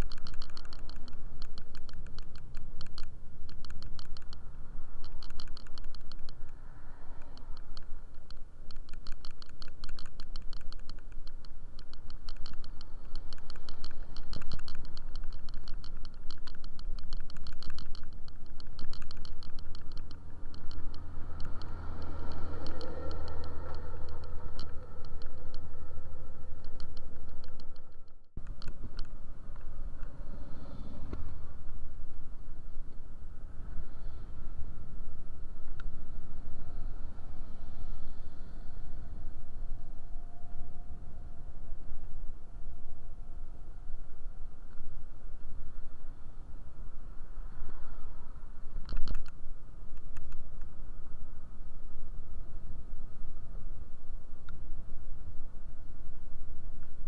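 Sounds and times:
rattle of small clicks: 0.0s - 30.2s, 48.6s - 49.4s
low hum: 0.0s - 57.0s
wind and road rumble: 0.0s - 57.0s.

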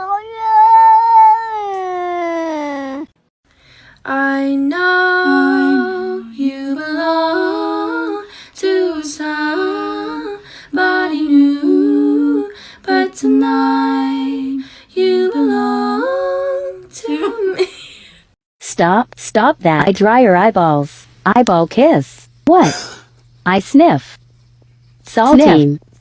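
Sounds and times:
woman singing slow tune: 3.9s - 18.0s.

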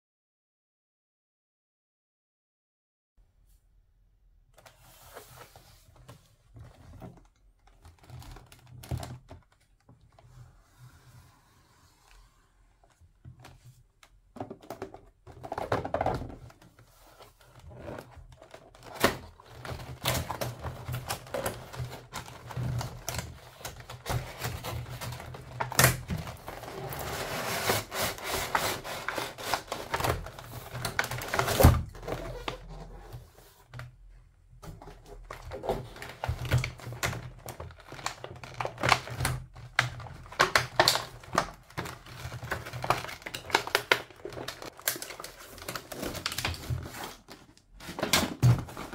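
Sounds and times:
scratchy plastic rustling: 14.8s - 33.8s, 34.6s - 48.9s.

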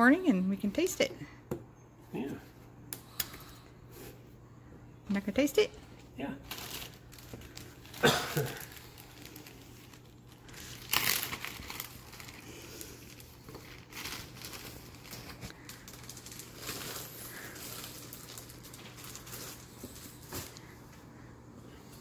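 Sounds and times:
plastic bag crinkling: 6.4s - 20.7s.

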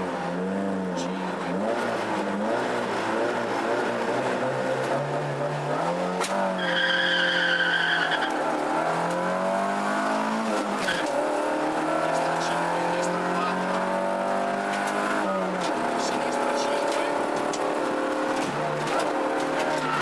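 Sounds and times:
rally car engine revving: 0.0s - 20.0s
tyres squealing: 6.6s - 8.4s, 10.6s - 11.2s, 18.9s - 20.0s.

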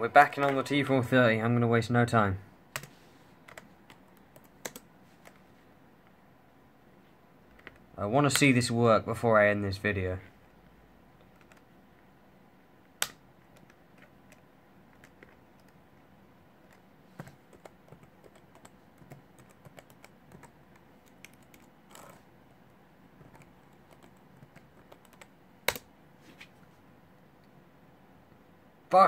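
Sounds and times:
laptop keyboard typing: 2.8s - 5.4s, 11.2s - 11.7s, 13.0s - 15.8s, 16.7s - 22.2s, 23.2s - 25.9s.

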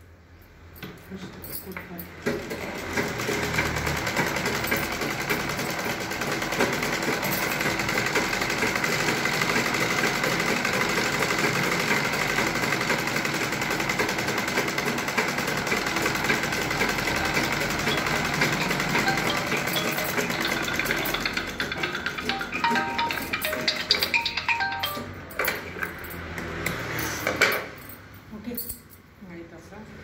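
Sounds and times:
sewing machine running: 2.2s - 25.1s.

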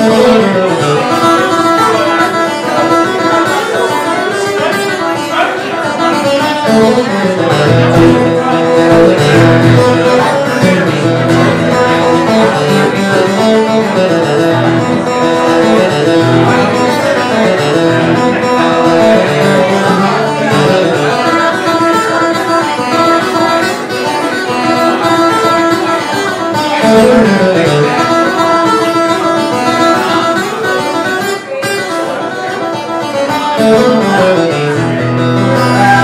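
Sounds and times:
acoustic guitar playing a tune: 0.0s - 36.0s
bass line: 6.8s - 21.1s.

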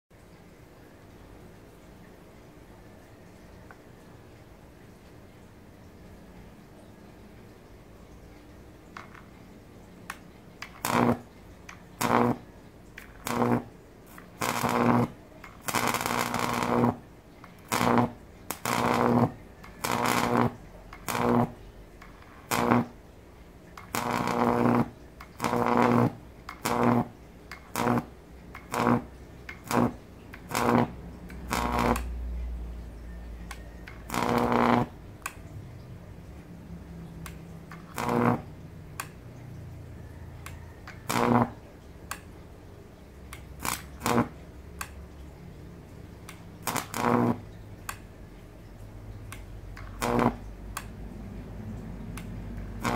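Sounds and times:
electric arc buzzing: 10.1s - 23.1s, 23.7s - 32.2s, 33.9s - 35.5s, 36.9s - 39.2s, 40.9s - 42.2s, 43.4s - 44.9s, 46.2s - 48.0s, 49.8s - 50.9s, 52.2s - 52.9s.

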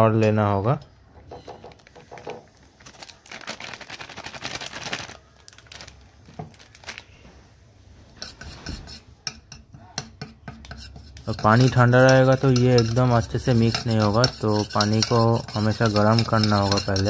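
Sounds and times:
foil packet rustling: 1.7s - 7.3s
spoon clinking and scraping bowl: 8.2s - 17.0s
metal spoon tapping steel bowl: 9.2s - 17.0s.

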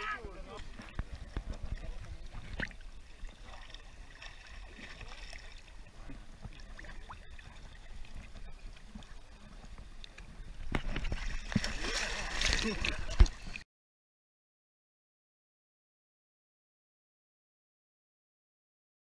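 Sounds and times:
water lapping and splashing: 0.0s - 13.6s.

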